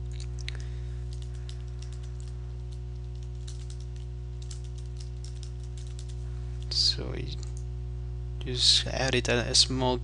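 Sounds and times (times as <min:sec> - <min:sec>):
steady low hum: 0:00.0 - 0:10.0
keyboard keys clicking: 0:01.1 - 0:06.2.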